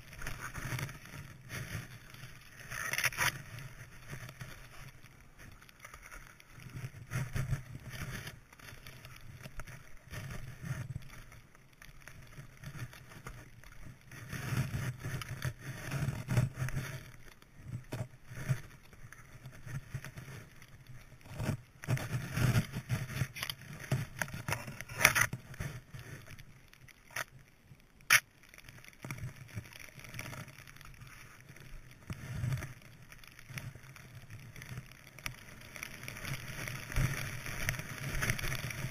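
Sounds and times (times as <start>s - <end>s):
skis swishing through powder snow: 0.0s - 21.2s, 28.6s - 38.9s.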